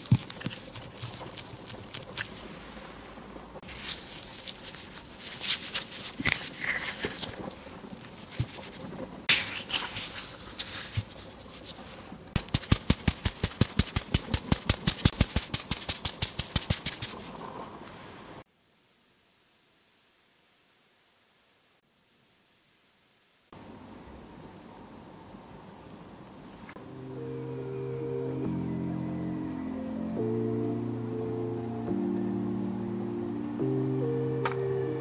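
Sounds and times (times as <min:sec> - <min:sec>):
plastic gloves crinkling: 0:00.0 - 0:17.6
small clicks and rustles: 0:03.6 - 0:17.9.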